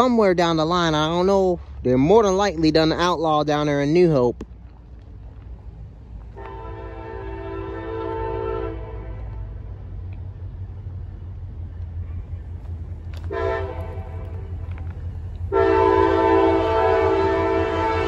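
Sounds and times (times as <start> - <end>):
low train rumble: 0.0 - 18.0
train air horn blasts: 6.4 - 9.6, 13.2 - 14.6, 15.5 - 18.0.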